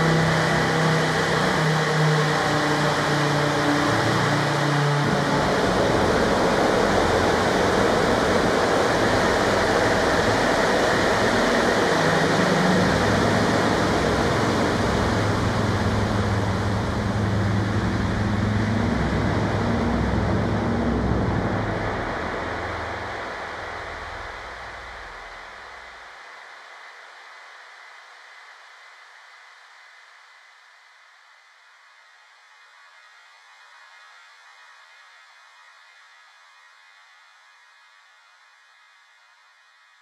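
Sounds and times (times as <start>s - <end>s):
experimental noise music: 0.0s - 29.8s.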